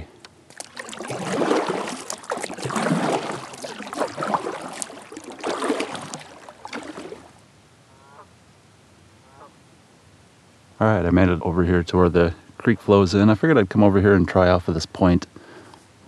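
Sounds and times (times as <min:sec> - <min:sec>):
paddle splashing in water: 0:00.0 - 0:07.4.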